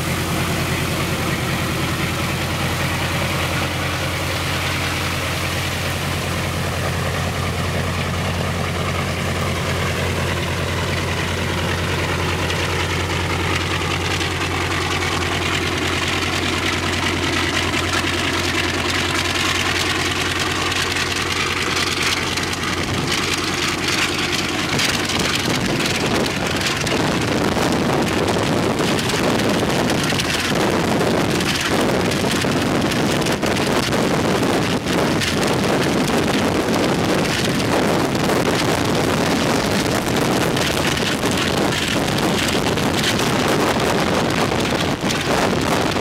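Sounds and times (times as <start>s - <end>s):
propeller blast rushing: 0.0s - 46.0s
radial piston engine running: 0.0s - 46.0s
wind buffeting microphone: 0.0s - 46.0s.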